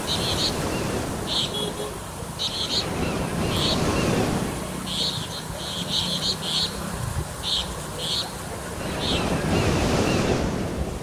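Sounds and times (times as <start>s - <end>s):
floodwater splashing and rushing: 0.0s - 11.0s
wind on microphone: 6.8s - 7.5s.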